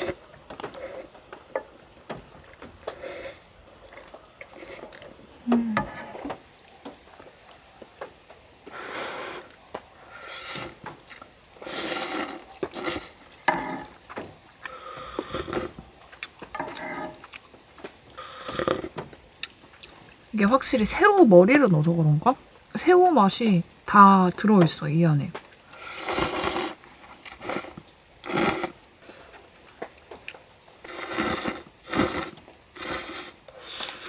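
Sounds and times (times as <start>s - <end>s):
noodles being slurped: 11.6s - 13.8s, 25.8s - 28.9s, 30.8s - 34.0s.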